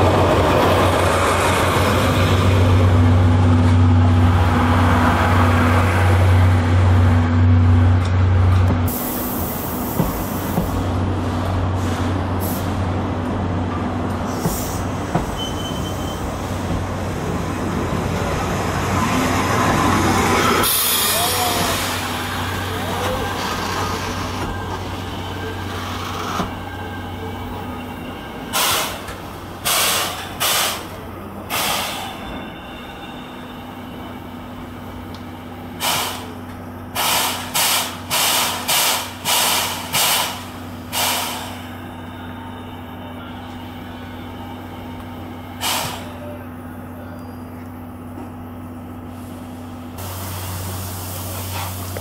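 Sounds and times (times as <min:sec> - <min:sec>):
steam locomotive hissing: 0:08.8 - 0:10.9, 0:14.2 - 0:18.8, 0:20.2 - 0:34.3, 0:35.7 - 0:42.5, 0:43.2 - 0:46.4, 0:49.1 - 0:52.0.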